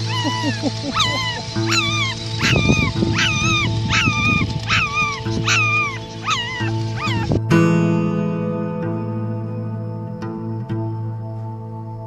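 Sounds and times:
puppy whining: 0.0s - 7.3s
background music with held notes: 0.0s - 12.0s.

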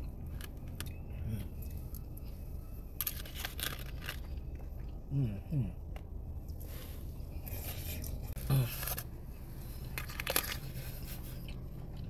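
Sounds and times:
person chewing food: 7.4s - 12.0s.

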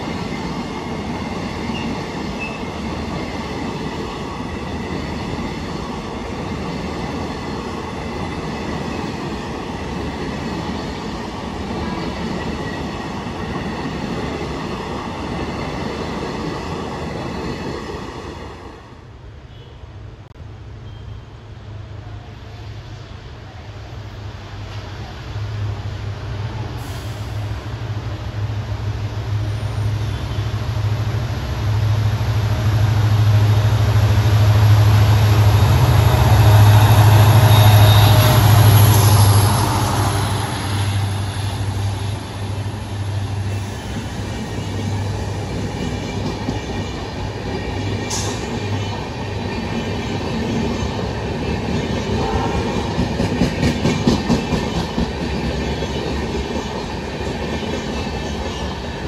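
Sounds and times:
diesel locomotive engine drone: 18.0s - 59.0s.

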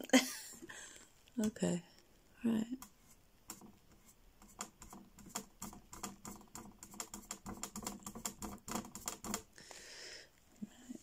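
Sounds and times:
paintbrush dabbing and stroking: 2.7s - 9.6s.

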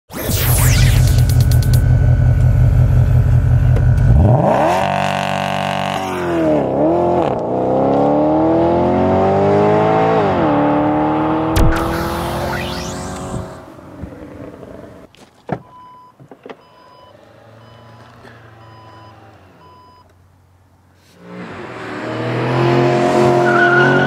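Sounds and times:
car engine revving and accelerating: 3.9s - 14.8s, 21.2s - 24.0s.

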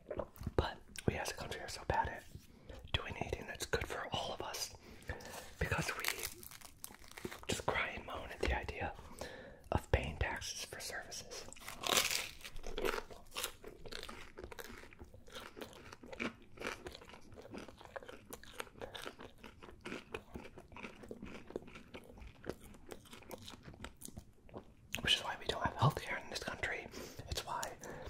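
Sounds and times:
person chewing crunchy food: 0.0s - 1.5s, 4.9s - 9.3s, 11.4s - 25.0s.

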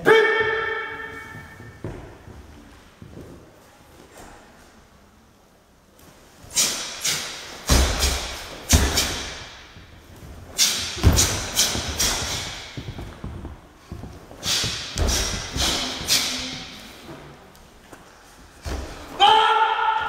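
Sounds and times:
hall reverberation: 0.0s - 2.6s
bare feet thudding on mat: 1.4s - 3.4s, 7.6s - 16.2s.

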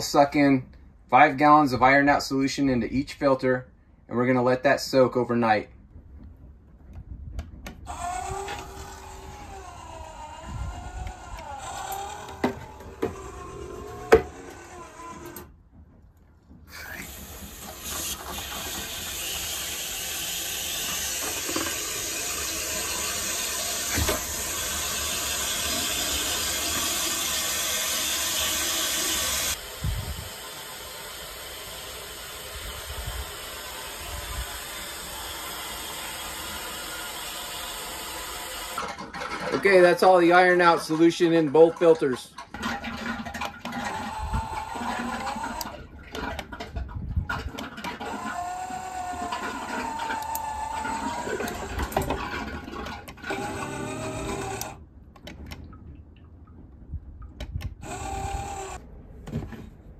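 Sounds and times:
water hissing through valve: 16.7s - 39.0s.

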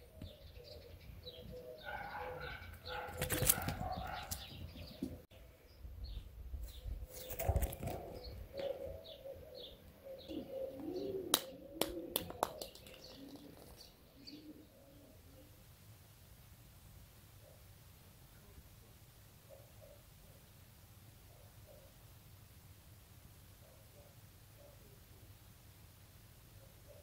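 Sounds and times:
low soft cooing: 7.8s - 12.4s.

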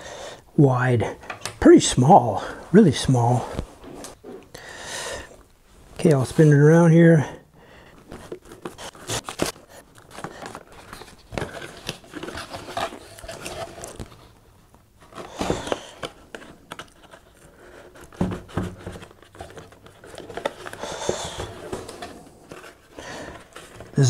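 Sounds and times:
plastic shrink-wrap crinkling: 7.8s - 18.1s
cardboard rubbing and tapping: 17.9s - 24.0s.

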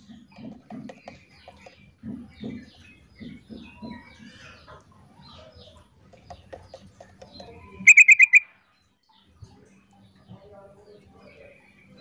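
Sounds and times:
bird chirping and bubbling notes: 7.9s - 8.4s.

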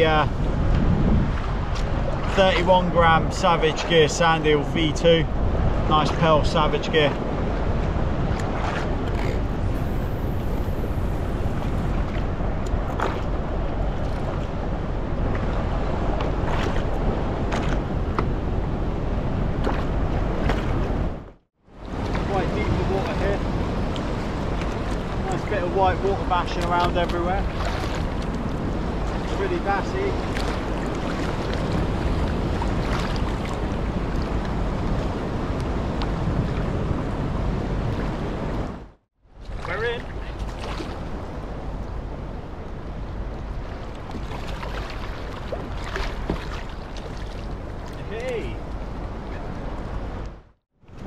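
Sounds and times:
wind rumbling on microphone: 0.0s - 51.0s
sea lapping against kayak hull: 5.8s - 18.4s, 19.6s - 21.0s, 21.7s - 37.2s, 39.3s - 42.6s, 43.4s - 50.5s.

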